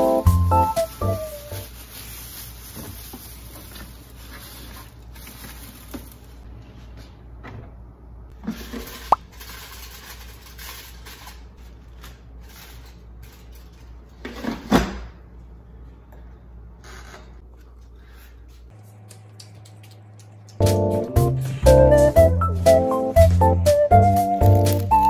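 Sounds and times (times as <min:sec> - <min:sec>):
plastic bin liner rustling: 0:00.4 - 0:06.4.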